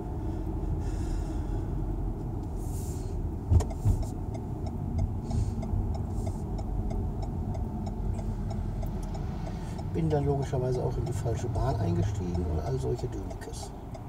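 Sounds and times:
car road noise rumble: 0:00.0 - 0:14.0
turn indicator ticking: 0:03.2 - 0:14.0.

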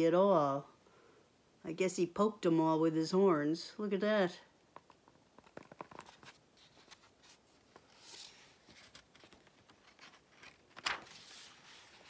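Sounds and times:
page flipping crackle: 0:04.8 - 0:12.0
paper pages rustling: 0:04.8 - 0:12.0.

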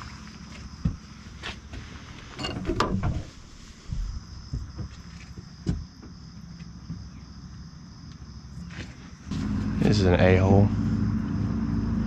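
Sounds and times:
reeds rustling against lens: 0:00.0 - 0:05.5.

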